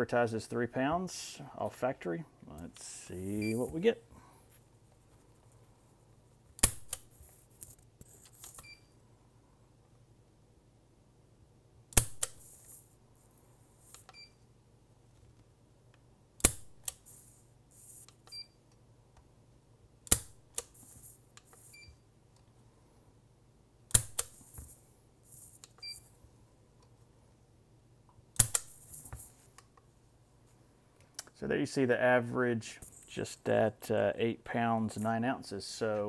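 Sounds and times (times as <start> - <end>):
short electronic beep: 3.4 - 3.7.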